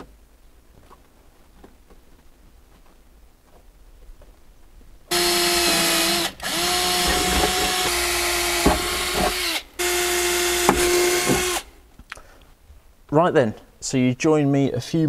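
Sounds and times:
cordless drill motor running: 5.1 - 11.7.

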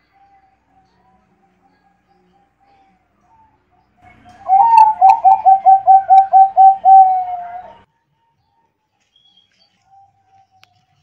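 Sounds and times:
dove cooing: 4.3 - 7.8.

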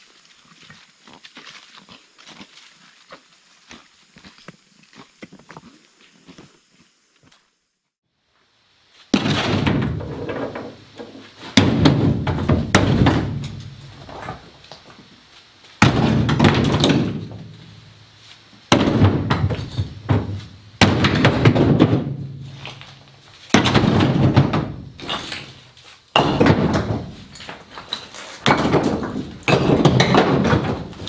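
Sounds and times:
concrete chunks thudding into truck bed: 9.2 - 14.6, 15.8 - 17.5, 18.7 - 31.0.

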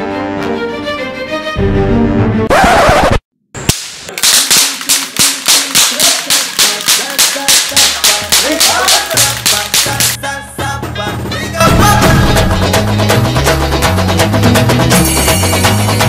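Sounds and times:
cap guns firing: 3.7 - 10.2
music with bass line: 7.8 - 16.0.

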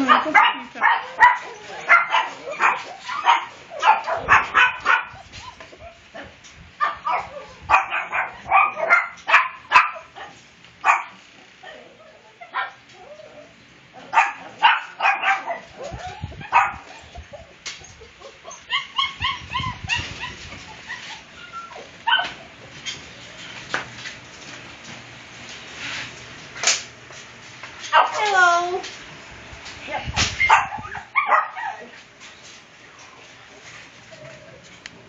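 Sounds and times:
puppies yipping and whining: 0.0 - 10.0, 10.9 - 23.2, 30.4 - 32.0.

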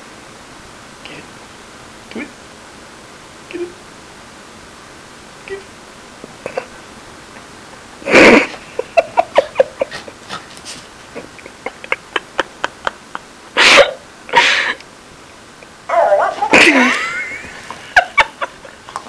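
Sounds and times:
small dog snorting: 9.9 - 10.8.

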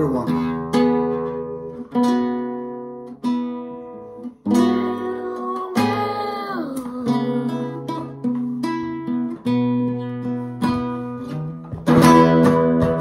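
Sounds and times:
acoustic guitar chords ringing: 0.0 - 13.0.

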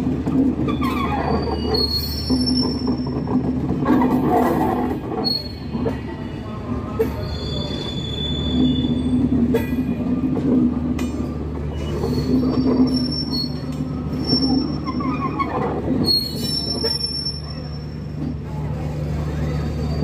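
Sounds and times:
clacks over rail joints: 0.0 - 6.2, 8.6 - 16.9
train wheels rumbling on rail: 0.0 - 20.0
high-pitched wheel squeal: 0.7 - 3.2, 3.9 - 5.9, 7.1 - 9.3, 11.7 - 18.1.

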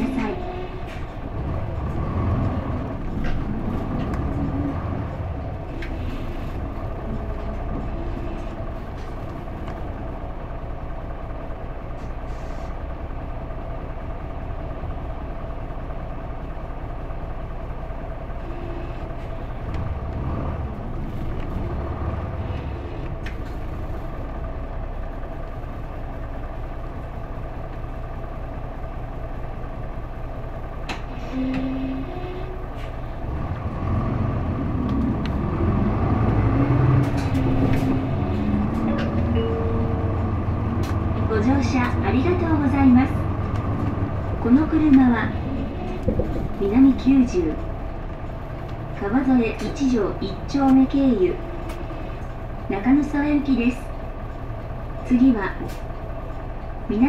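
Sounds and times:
bus diesel engine rumbling: 0.0 - 57.0.

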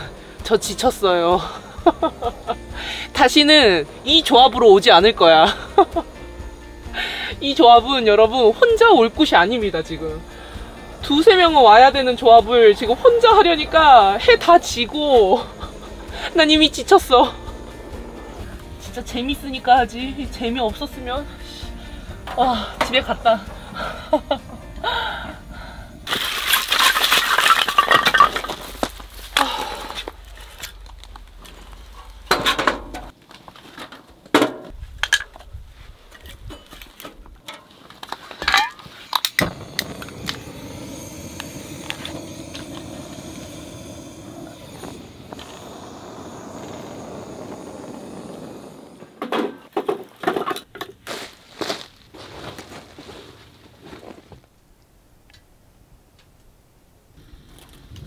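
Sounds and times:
gas torch hissing: 0.0 - 26.1, 39.0 - 49.7
steady rushing sound: 0.6 - 7.0, 7.8 - 21.2, 39.4 - 49.2.

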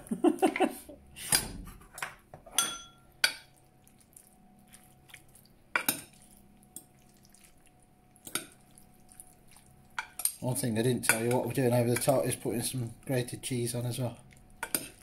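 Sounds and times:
metal spoon clinking on glass dish: 2.5 - 3.5.

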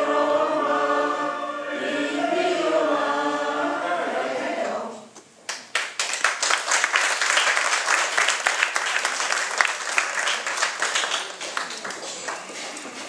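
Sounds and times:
crowd applauding: 5.5 - 13.0.

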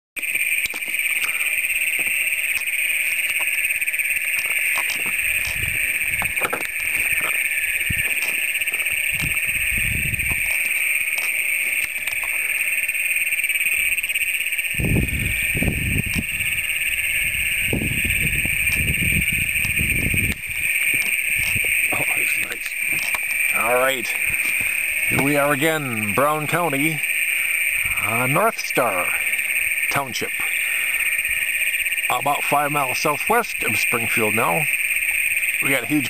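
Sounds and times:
toads trilling in chorus: 0.2 - 36.0.

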